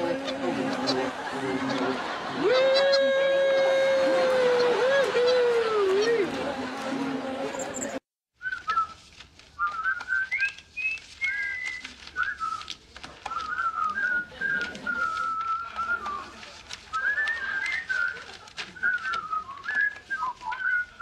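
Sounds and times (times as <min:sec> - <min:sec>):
person whistling a tune: 0:08.4 - 0:09.0, 0:09.6 - 0:12.7, 0:16.9 - 0:21.0.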